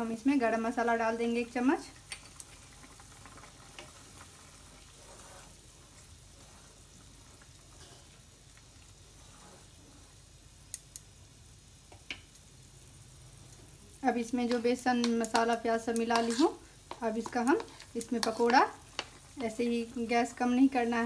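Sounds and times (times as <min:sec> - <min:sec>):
curry bubbling in a metal pan: 0:01.4 - 0:21.0
wooden spatula stirring: 0:03.4 - 0:07.8, 0:08.6 - 0:10.0, 0:14.5 - 0:20.5.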